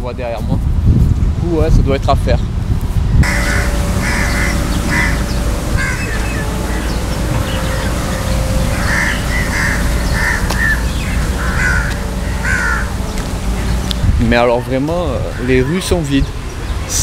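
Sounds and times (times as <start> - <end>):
steady low rumble: 0.4 - 17.0
crows cawing: 3.2 - 14.0, 15.2 - 15.9.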